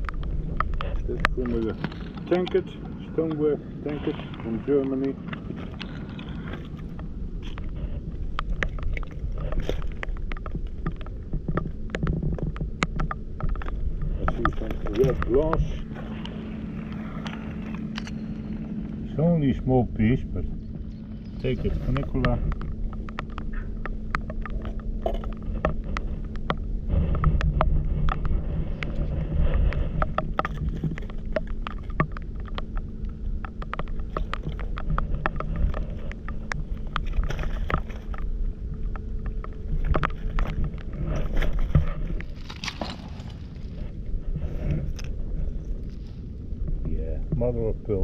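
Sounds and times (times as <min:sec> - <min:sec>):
faint steady hum: 0:00.0 - 0:48.0
wind on microphone: 0:00.0 - 0:48.0
rain ticks: 0:04.8 - 0:29.0, 0:29.6 - 0:40.9.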